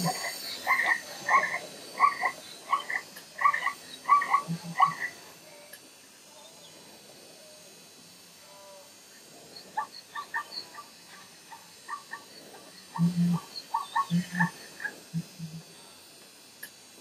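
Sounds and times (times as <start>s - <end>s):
croak-like animal calls: 0.0s - 5.2s, 9.6s - 15.6s.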